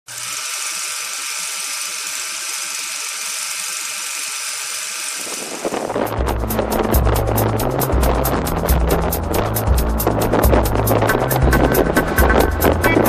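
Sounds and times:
film projector whirring: 0.1 - 6.6
music with bass beat: 5.9 - 13.0.

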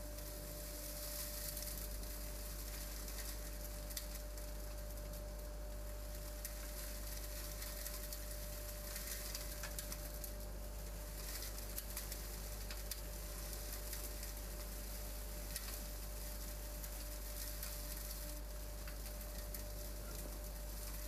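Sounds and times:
debris crackling up hose: 0.0 - 21.0.

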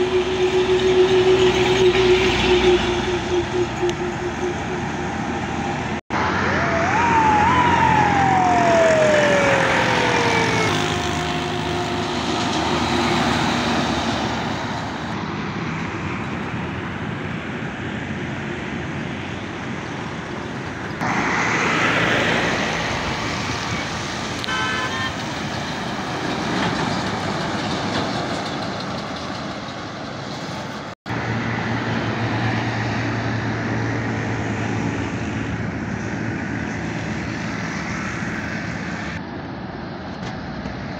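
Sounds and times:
high tone sliding down: 0.0 - 14.8
heavy trucks driving past: 0.0 - 40.9
tyre and traffic noise: 0.0 - 40.9.

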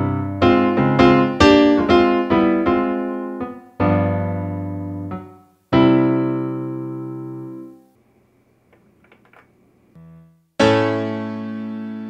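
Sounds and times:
piano chord: 0.0 - 7.8, 10.0 - 12.0.

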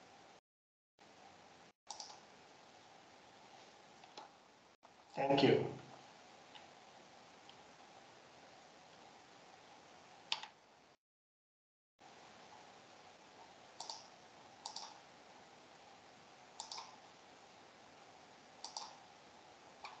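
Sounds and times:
faint steady hiss: 1.0 - 11.0, 12.0 - 20.0
computer mouse clicking: 1.9 - 2.2, 10.3 - 10.6, 13.8 - 15.0, 16.6 - 17.0, 18.6 - 19.0, 19.8 - 20.0.

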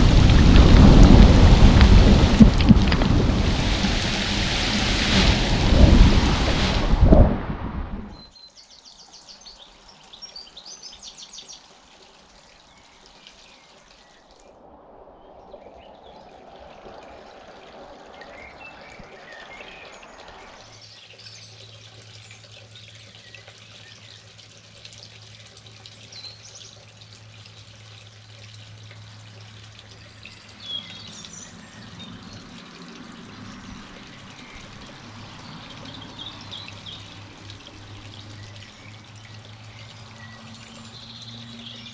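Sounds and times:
water trickling and dripping: 0.0 - 7.3, 7.9 - 41.9
small birds chirping: 8.1 - 11.7, 29.9 - 41.9.

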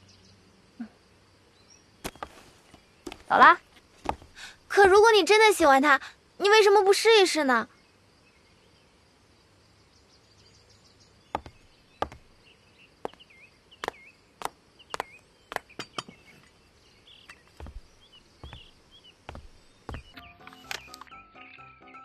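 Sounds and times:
high heels clicking on stone steps: 3.1 - 3.4, 4.0 - 4.5, 11.4 - 12.3, 13.8 - 15.9, 17.5 - 20.2.

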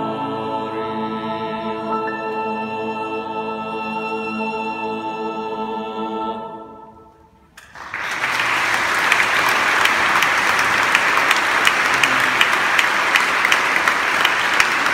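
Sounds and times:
audience applause: 7.6 - 14.9.

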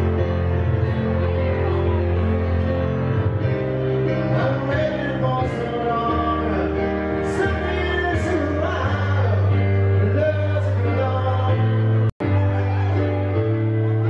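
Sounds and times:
piano: 0.0 - 14.0
person singing: 4.0 - 14.0.

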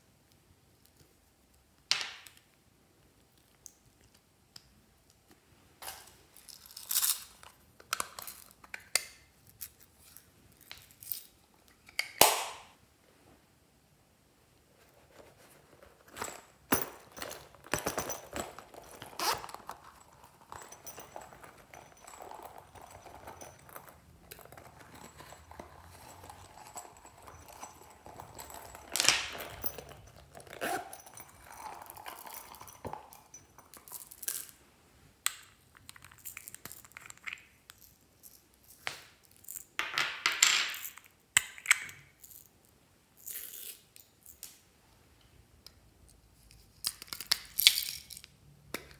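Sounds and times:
pouch rustling and crackling: 14.8 - 33.4
zipper pulls: 16.0 - 32.9.

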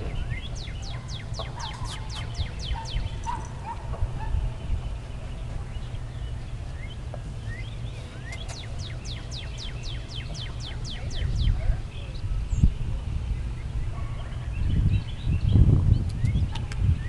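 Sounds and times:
bird chirps: 0.0 - 17.0
wind rumble on microphone: 0.0 - 17.0.

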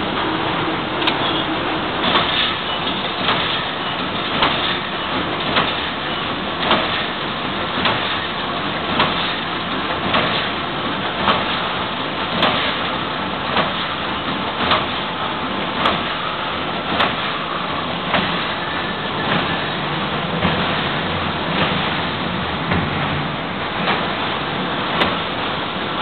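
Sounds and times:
machine room noise: 0.0 - 26.0
welding machine clunk: 18.1 - 18.5.

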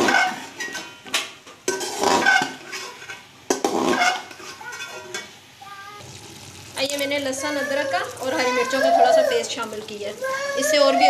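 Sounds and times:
metal spatula scraping metal pot: 0.0 - 1.0, 1.7 - 5.3.

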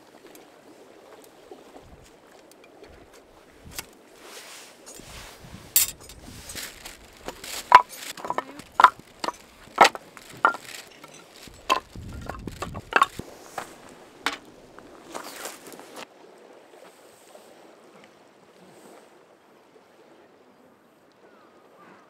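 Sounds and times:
firewood clacking when stacked: 5.8 - 14.6.

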